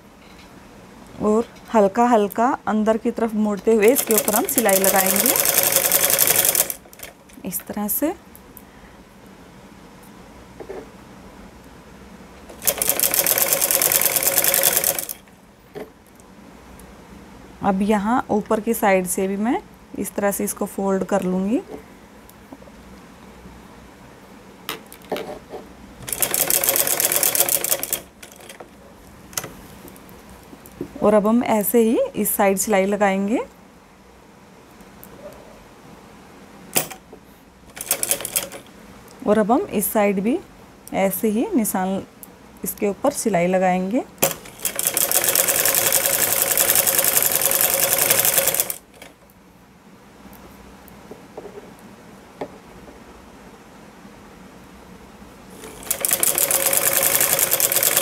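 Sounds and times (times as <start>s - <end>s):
sewing machine stitching: 3.8s - 7.2s, 12.6s - 15.2s, 26.0s - 28.6s, 37.7s - 38.6s, 44.2s - 49.1s, 55.6s - 58.0s.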